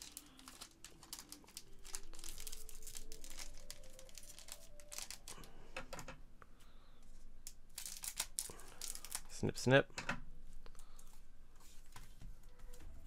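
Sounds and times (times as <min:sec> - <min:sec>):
foil wrappers crinkling: 0:00.0 - 0:05.6, 0:07.4 - 0:09.4.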